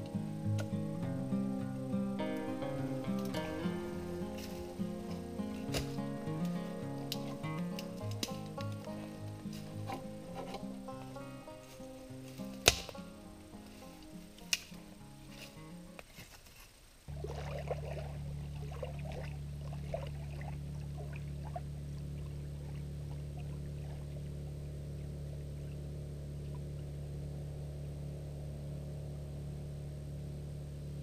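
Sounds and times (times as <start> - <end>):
background music: 0.0 - 15.9
steady low hum: 0.0 - 16.1, 16.9 - 31.0
small waves lapping and splashing: 17.0 - 24.6.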